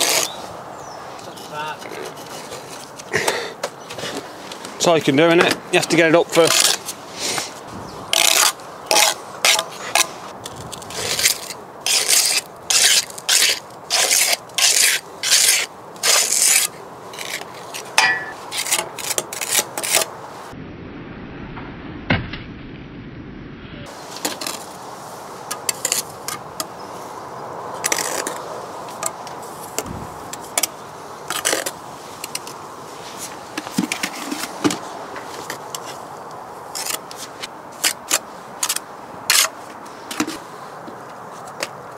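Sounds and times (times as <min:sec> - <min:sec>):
trowel scraping mortar on brick: 0:00.0 - 0:00.4, 0:01.3 - 0:03.1, 0:06.3 - 0:20.1, 0:27.8 - 0:28.4.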